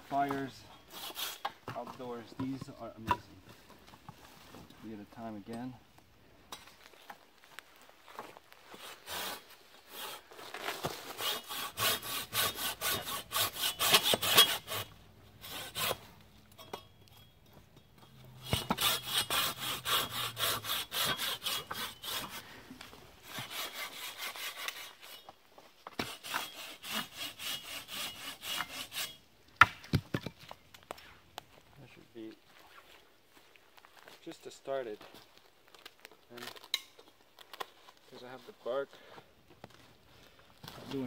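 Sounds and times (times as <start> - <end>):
hand saw rasping through branches: 0.4 - 1.6, 8.7 - 16.2, 18.4 - 22.6, 23.2 - 29.3.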